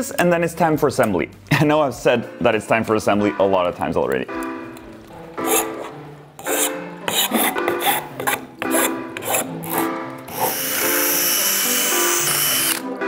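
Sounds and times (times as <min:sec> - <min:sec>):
background music: 0:00.0 - 0:13.0
blade scraping plastic: 0:05.4 - 0:10.7
cordless drill running: 0:10.3 - 0:12.8.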